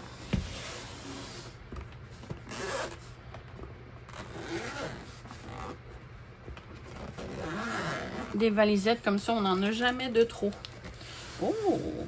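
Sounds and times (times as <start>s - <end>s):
zipper rasping open: 2.4s - 3.0s, 4.1s - 5.9s, 6.8s - 8.4s, 10.9s - 12.0s.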